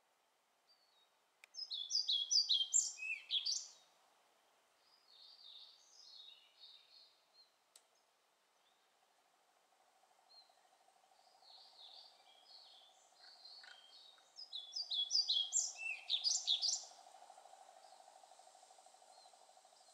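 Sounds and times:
flycatcher singing: 1.6 - 3.8, 11.2 - 19.9.

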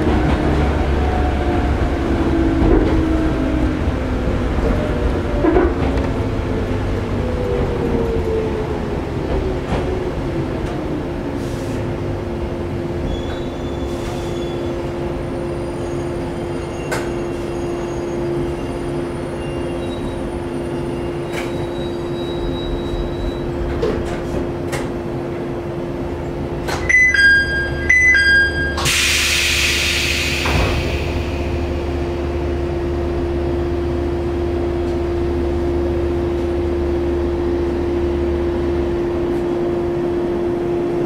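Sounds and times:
train hum and low rumble: 0.0 - 41.0.

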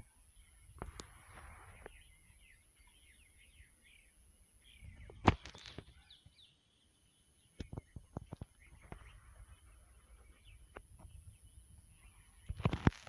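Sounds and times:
low rumble of wind: 0.0 - 13.0
small birds chirping: 0.0 - 13.0.

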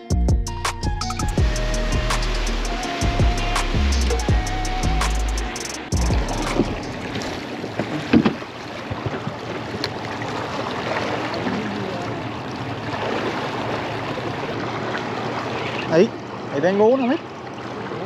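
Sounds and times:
water lapping against boat hull: 5.9 - 18.0.

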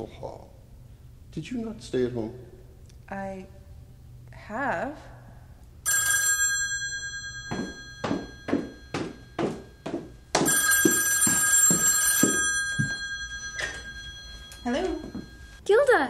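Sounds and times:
telephone bell ringing: 5.8 - 15.6
footsteps on stairs: 7.5 - 13.8, 14.5 - 15.5.

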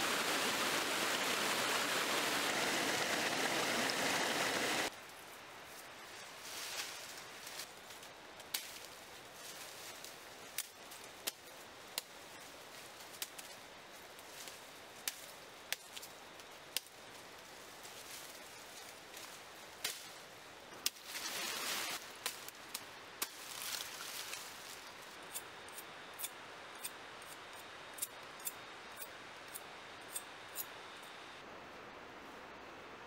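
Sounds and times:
rustle of fronds: 0.0 - 25.6.

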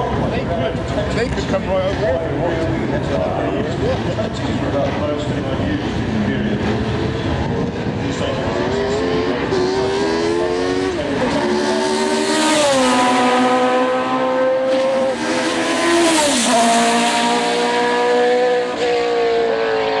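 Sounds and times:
race car engine accelerating past: 8.3 - 20.0.

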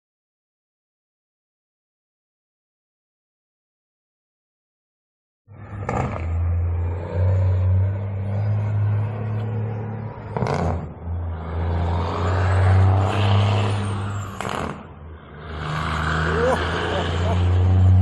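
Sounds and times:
truck diesel engine shifting gears: 5.8 - 18.0.

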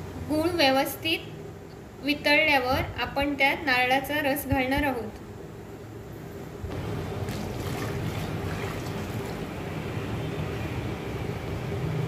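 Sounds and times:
liquid pouring into pan: 6.9 - 9.5.

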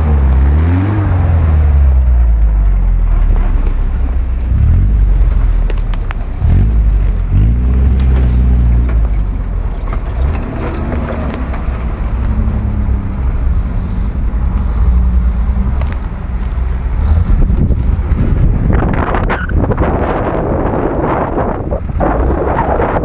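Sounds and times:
suv engines running slowly: 0.0 - 23.0
light clicks and cracks: 5.1 - 6.4.

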